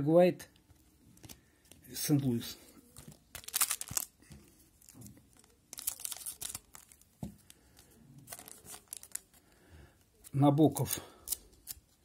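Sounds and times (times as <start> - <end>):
foil wrapper crinkling: 2.9 - 9.5.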